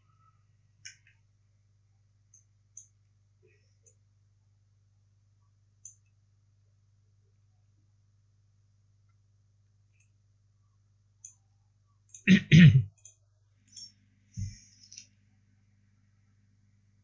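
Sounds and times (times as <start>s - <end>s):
low electrical hum: 0.0s - 17.0s
computer mouse clicks: 0.8s - 1.2s, 2.3s - 3.0s, 5.8s - 6.2s, 9.9s - 10.2s, 11.2s - 11.4s, 12.0s - 12.3s, 13.0s - 15.1s.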